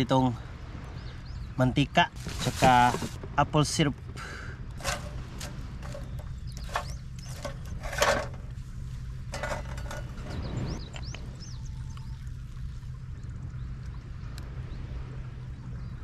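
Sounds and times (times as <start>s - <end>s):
cooking gear and bottles clicking: 4.8s - 8.6s, 9.3s - 11.1s.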